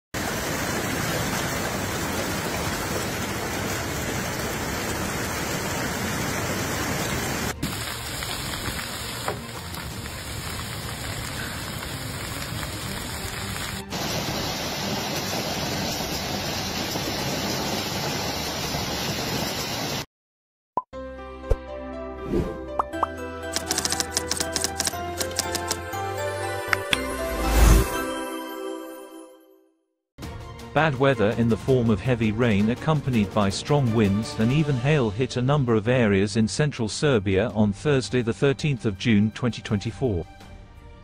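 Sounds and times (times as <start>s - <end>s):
hail and rain pelting down: 0.2s - 20.0s.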